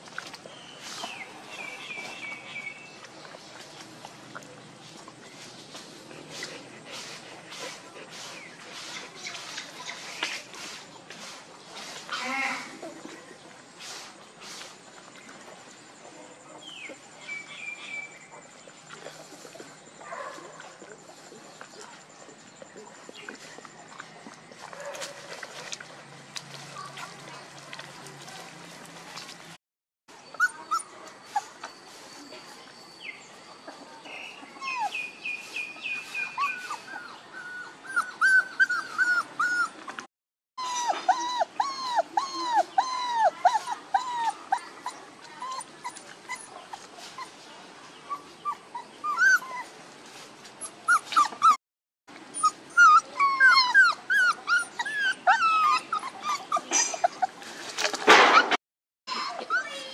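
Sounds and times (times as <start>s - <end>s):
puppies whining: 30.3s - 32.4s, 34.4s - 40.0s, 40.6s - 47.4s, 48.1s - 49.7s, 50.6s - 51.6s, 52.3s - 57.4s, 58.3s - 59.9s.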